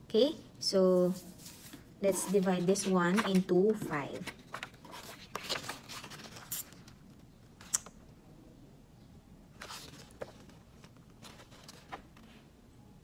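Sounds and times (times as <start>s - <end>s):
paper sliding and rustling: 1.2s - 3.5s.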